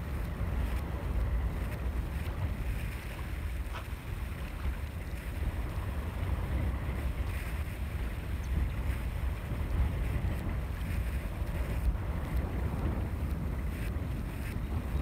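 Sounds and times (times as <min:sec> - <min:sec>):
wind buffeting microphone: 0:00.0 - 0:15.0
small waves lapping: 0:01.6 - 0:10.0.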